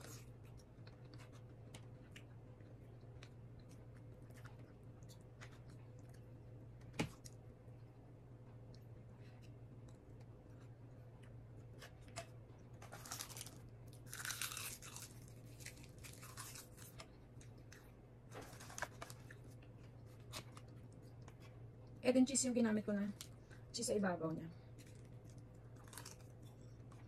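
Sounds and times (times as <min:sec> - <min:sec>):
chewing and crunching: 0:00.0 - 0:06.3, 0:12.6 - 0:21.5, 0:24.7 - 0:27.0.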